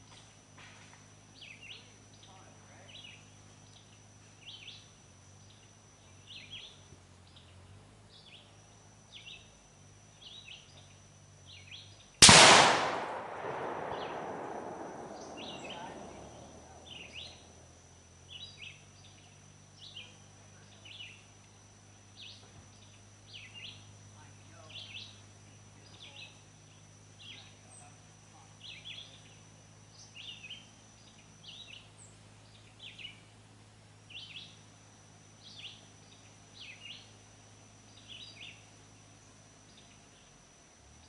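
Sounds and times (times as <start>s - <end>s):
birds chirping: 1.4s - 12.1s, 12.8s - 17.6s, 18.3s - 21.3s, 22.1s - 28.0s
rifle shot echoing: 12.2s - 17.5s.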